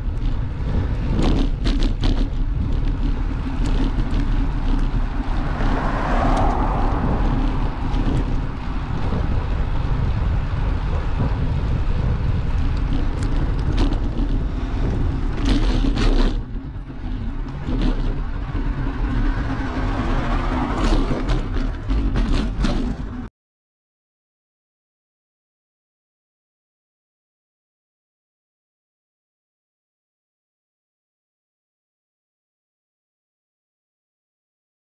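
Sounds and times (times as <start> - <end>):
bicycle rattles: 0.0 - 23.3
road traffic noise: 0.0 - 23.3
wind buffeting microphone: 0.0 - 23.3.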